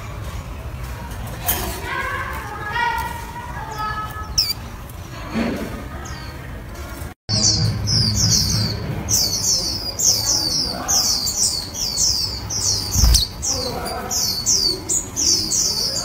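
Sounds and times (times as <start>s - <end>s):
birds chirping: 2.3s - 16.0s
dull thump: 13.0s - 13.4s.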